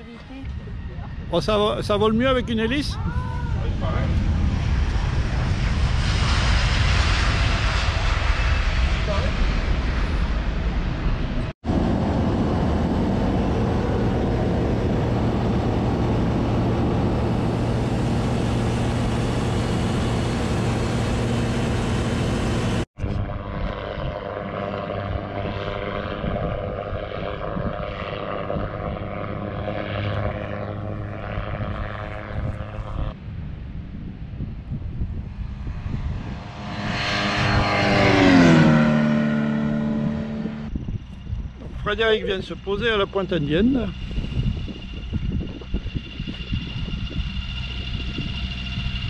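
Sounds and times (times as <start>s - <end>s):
propeller aircraft engine: 0.0s - 49.0s.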